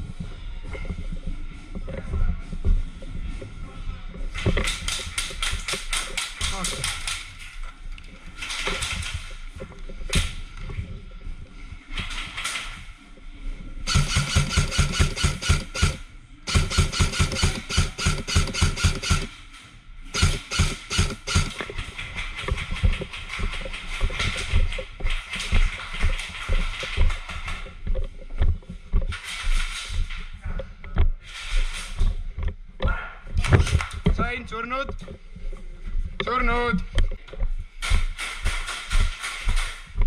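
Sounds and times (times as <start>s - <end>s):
scattered clicks: 4.4s - 10.7s, 13.9s - 19.4s, 20.1s - 28.1s
airsoft gun rapid shots: 13.9s - 19.3s, 20.1s - 23.7s.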